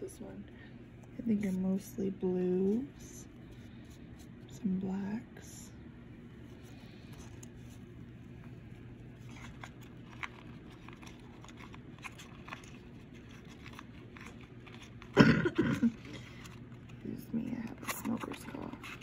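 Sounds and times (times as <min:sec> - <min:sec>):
paper rustling and clicking: 0:09.2 - 0:15.2, 0:17.6 - 0:19.0
person coughing: 0:15.1 - 0:16.2.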